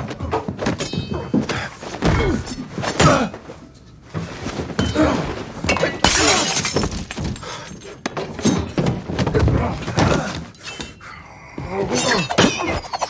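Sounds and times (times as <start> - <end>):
glass breaking: 4.8 - 7.7.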